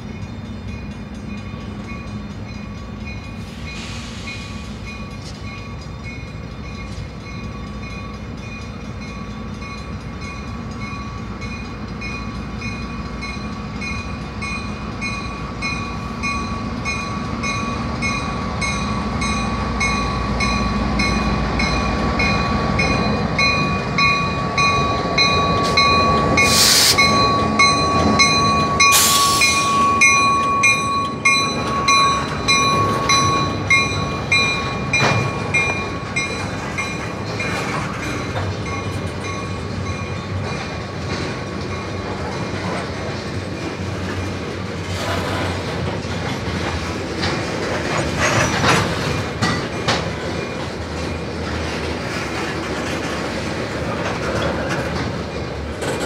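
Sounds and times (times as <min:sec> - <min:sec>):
railroad crossing bell ringing: 0:00.0 - 0:44.8, 0:48.3 - 0:52.0
diesel locomotive engine rumble: 0:00.0 - 0:56.0
train wheels clacking: 0:00.0 - 0:56.0
loud hisses: 0:03.5 - 0:04.9, 0:26.4 - 0:27.1, 0:28.9 - 0:29.8.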